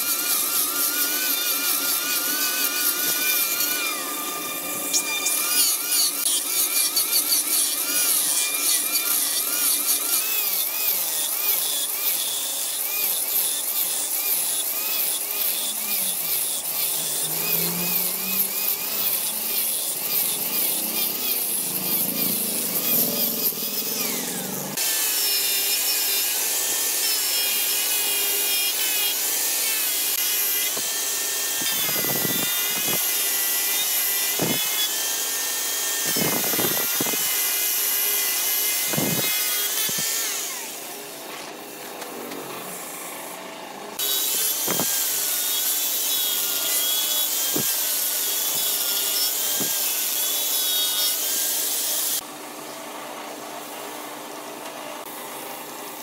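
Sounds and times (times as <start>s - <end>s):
angle grinder sanding wood: 0.0s - 43.4s.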